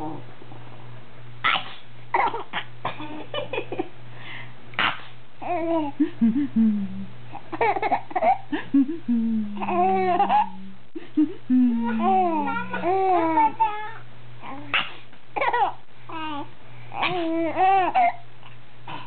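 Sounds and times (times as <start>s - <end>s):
baby laughing and babbling: 5.4s - 6.6s, 7.3s - 18.2s.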